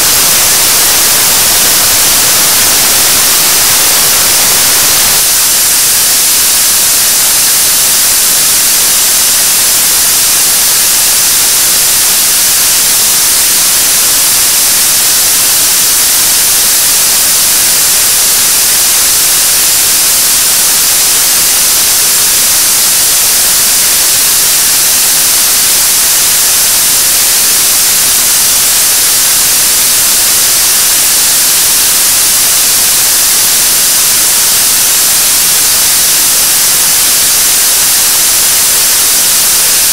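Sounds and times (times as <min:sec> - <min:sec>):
rocket engine rushing hiss: 0:00.0 - 0:13.5.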